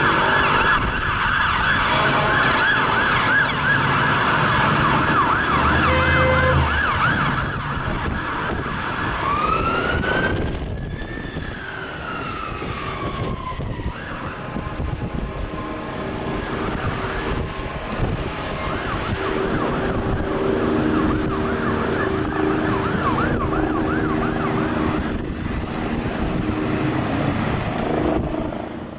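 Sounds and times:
fire engine siren yelp: 0.0s - 28.9s
siren wail: 0.0s - 28.9s
street traffic: 0.0s - 28.9s
bullhorn blast: 5.6s - 7.4s.

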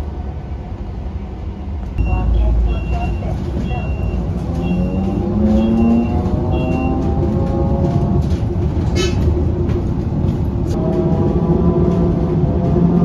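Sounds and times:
road rumble: 0.0s - 13.0s
short high beeps: 2.0s - 7.0s.

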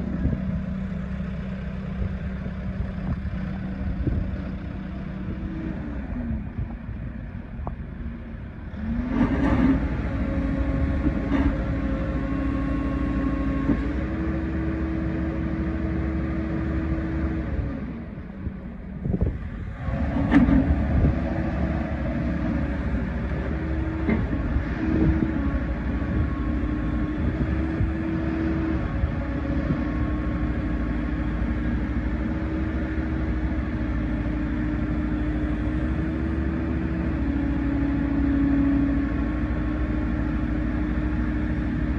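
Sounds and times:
excavator diesel engine: 0.0s - 41.9s
hydraulics working: 8.4s - 41.9s
clunk: 20.2s - 20.7s.

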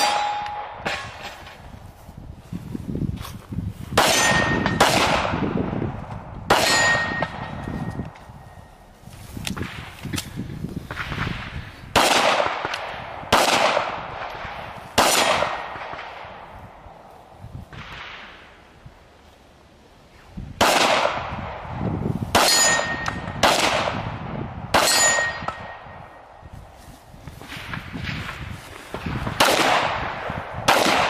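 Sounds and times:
handgun shots with echo: 0.0s - 1.4s, 6.5s - 7.6s, 29.3s - 31.0s.

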